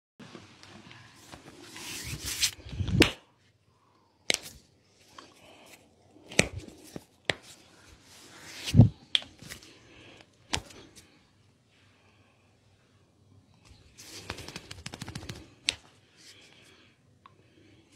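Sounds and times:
hands rubbing skin: 14.0 - 15.9.

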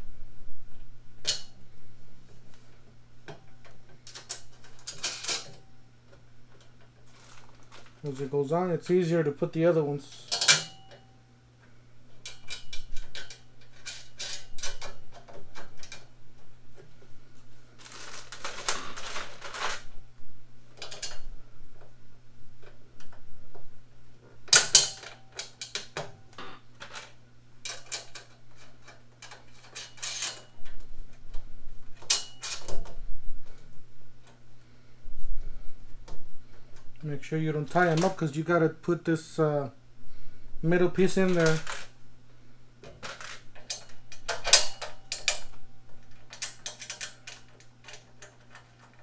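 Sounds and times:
rattling rustles: 2.2 - 8.4, 12.1 - 20.0, 40.1 - 42.0, 42.8 - 49.0
metal bolts and nuts clinking: 3.3 - 5.6, 10.0 - 11.0, 12.2 - 16.1, 26.8 - 30.5, 32.0 - 32.9, 42.8 - 49.0.

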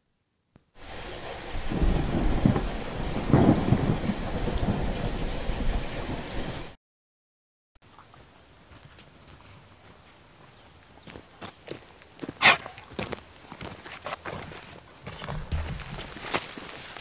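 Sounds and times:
heavy rain: 0.8 - 6.8
thunder rolling: 0.8 - 6.8.

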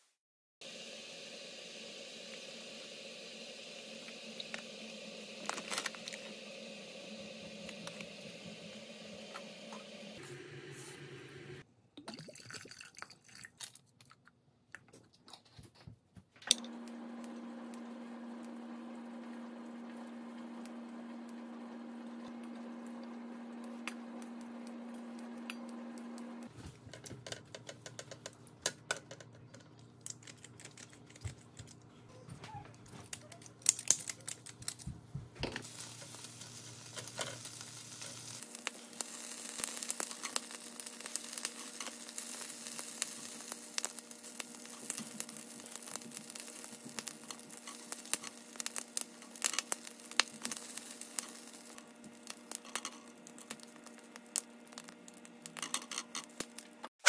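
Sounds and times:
water splashing in a pot: 12.0 - 13.8.

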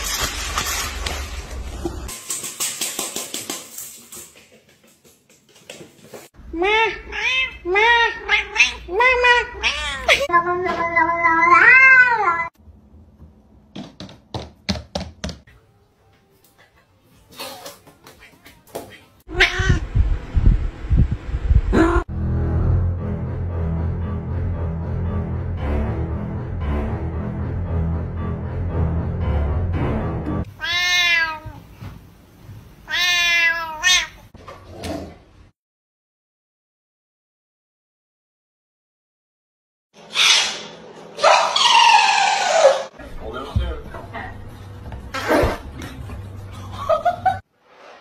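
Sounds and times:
cat meowing: 6.6 - 12.5, 19.3 - 19.9, 30.5 - 31.6, 32.9 - 34.2.

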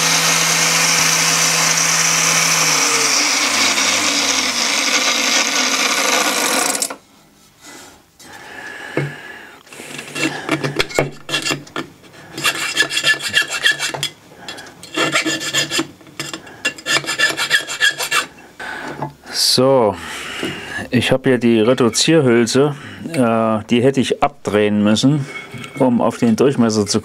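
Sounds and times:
angle grinder running: 0.0 - 7.0
file rasping on steel tube: 11.2 - 11.7, 12.3 - 18.4.

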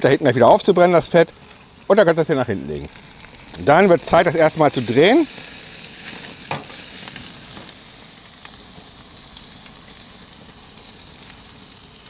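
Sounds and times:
fat dripping onto hot plates: 0.0 - 12.0
meat sizzling on a grill: 0.0 - 12.0
knock: 6.5 - 6.7.

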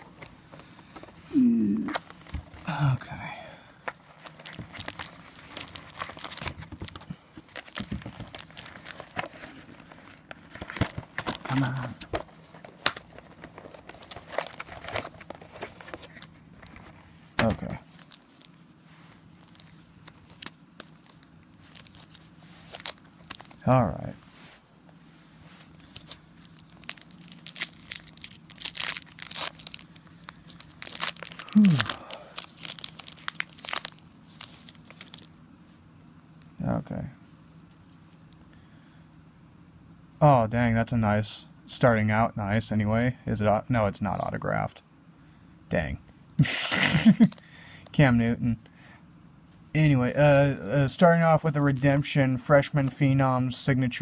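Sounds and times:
low grunt: 1.3 - 2.0, 31.4 - 32.1
cardboard and foil packs rustling: 3.8 - 23.9, 24.6 - 35.3.

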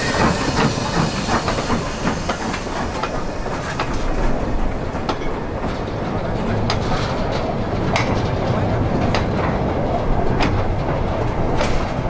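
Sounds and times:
hiss: 0.0 - 4.1
train running on rails: 0.0 - 12.0
wheels clicking over track: 0.0 - 12.0.

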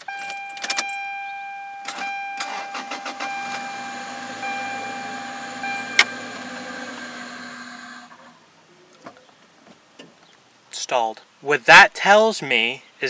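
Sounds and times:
steady high tone: 0.0 - 8.2
car starter cranking: 1.8 - 8.3
car engine running: 2.4 - 8.2.

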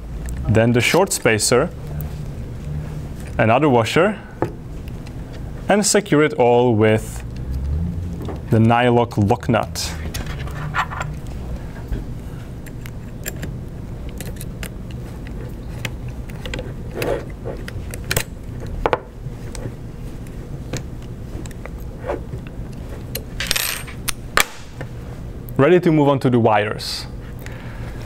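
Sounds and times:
steady low hum: 0.0 - 28.0
metal tools clicking and scraping: 12.6 - 18.7, 23.1 - 24.2.

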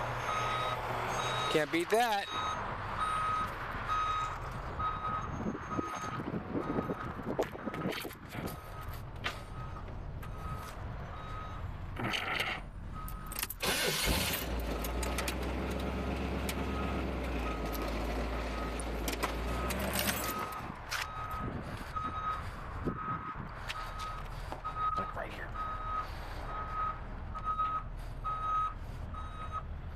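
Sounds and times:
truck backup alarm beeping: 0.0 - 15.0, 16.0 - 29.9
engine rumble: 0.0 - 29.9.

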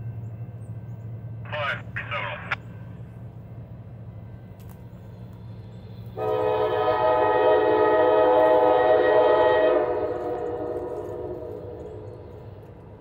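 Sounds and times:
locomotive air horn blast: 6.2 - 11.8.

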